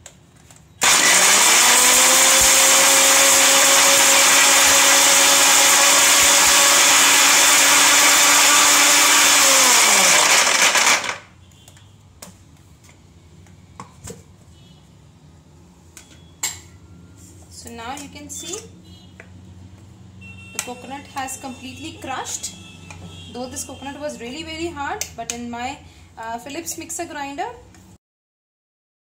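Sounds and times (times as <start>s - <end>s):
mixer grinder motor whining: 0.8s - 11.2s.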